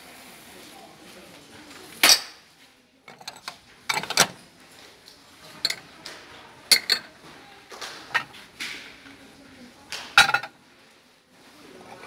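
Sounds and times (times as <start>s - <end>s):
plates clinking: 3.1s - 4.4s, 5.6s - 5.9s, 6.6s - 7.2s, 7.8s - 8.4s, 10.0s - 10.6s.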